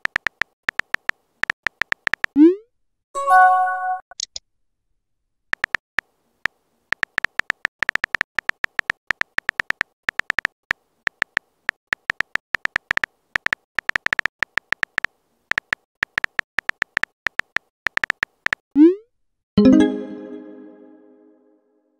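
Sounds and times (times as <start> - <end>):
phone keyboard tap clicks: 11.1 - 18.6.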